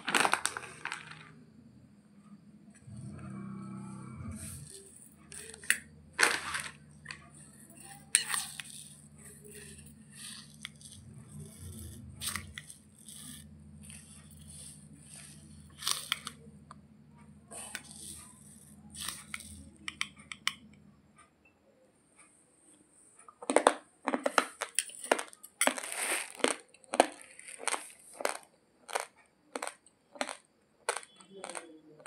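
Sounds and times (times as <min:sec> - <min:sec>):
rice rattling in a steel bowl: 0:00.0 - 0:01.3, 0:04.4 - 0:16.3
low steady hum: 0:00.0 - 0:23.2.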